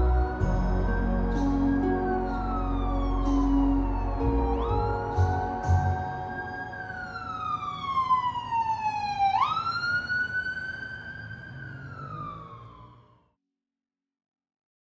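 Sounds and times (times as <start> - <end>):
low rumble: 0.0 - 7.1
emergency siren wailing: 0.0 - 13.4.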